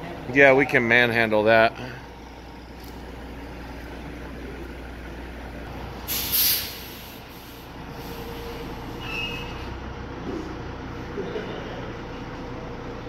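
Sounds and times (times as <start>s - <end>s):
diesel truck engine running: 0.0s - 13.0s
air brake hiss: 6.1s - 9.7s.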